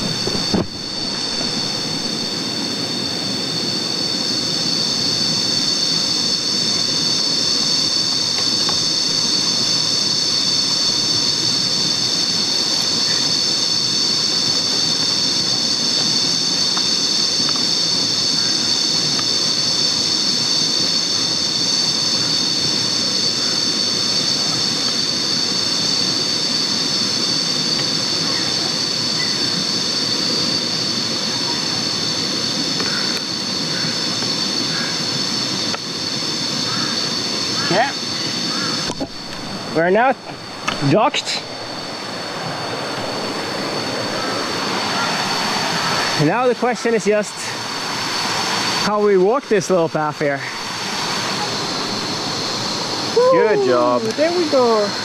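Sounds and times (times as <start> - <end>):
low rushing noise: 0.0 - 2.6
cicadas droning: 0.0 - 55.0.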